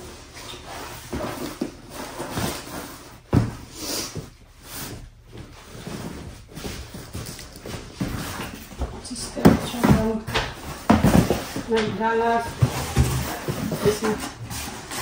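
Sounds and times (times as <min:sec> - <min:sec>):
gift bag and paper rustling: 0:11.0 - 0:15.0.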